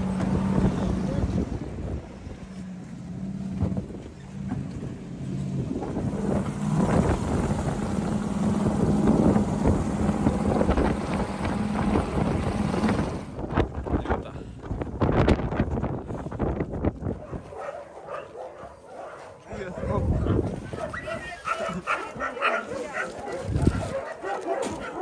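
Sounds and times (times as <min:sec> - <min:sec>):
wind noise on microphone: 0:00.0 - 0:02.6, 0:03.5 - 0:04.9, 0:05.5 - 0:17.7, 0:19.7 - 0:22.3, 0:23.4 - 0:24.0
vehicle engine running: 0:00.0 - 0:14.0.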